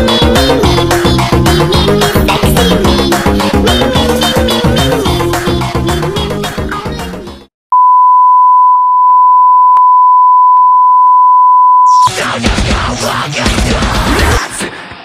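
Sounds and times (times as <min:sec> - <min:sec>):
heavy rock music: 0:00.0 - 0:07.3, 0:12.0 - 0:15.0
background music: 0:00.0 - 0:07.5
steady single-pitch beep tone: 0:07.7 - 0:12.1.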